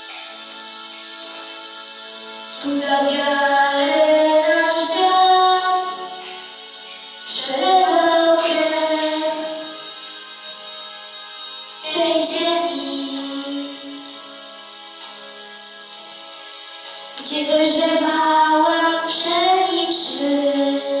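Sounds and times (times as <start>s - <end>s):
held instrumental accompaniment: 0.0s - 21.0s
girl singing into a microphone: 2.6s - 6.5s, 7.3s - 9.8s, 11.7s - 14.0s, 17.2s - 21.0s.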